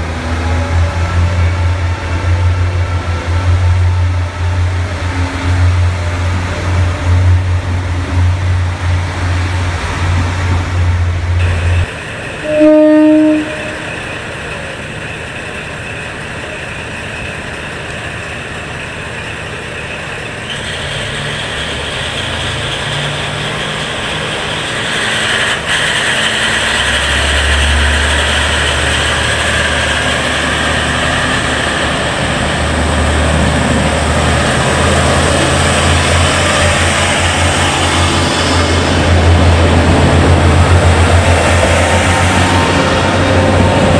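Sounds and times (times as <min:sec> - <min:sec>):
railcar diesel engine rumble: 0:00.0 - 0:43.9
train horn blast: 0:12.4 - 0:13.8.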